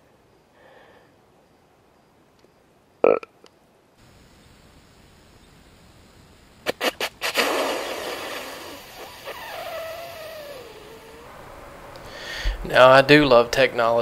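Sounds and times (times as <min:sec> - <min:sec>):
deer wheeze hiss: 0:06.7 - 0:11.3.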